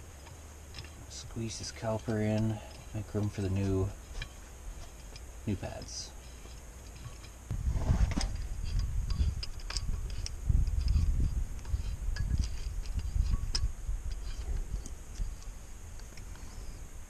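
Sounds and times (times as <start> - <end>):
low rumbling handling noise: 0.0 - 17.0.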